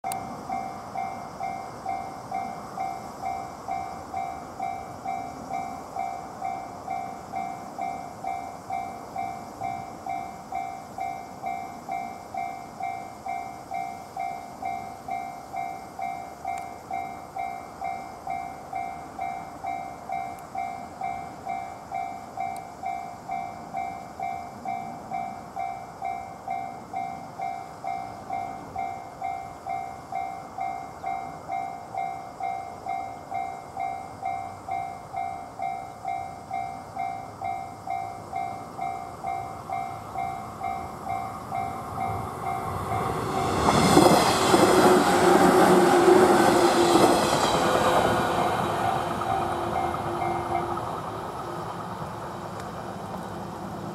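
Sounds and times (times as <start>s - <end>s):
train rolling past: 0.0s - 53.9s.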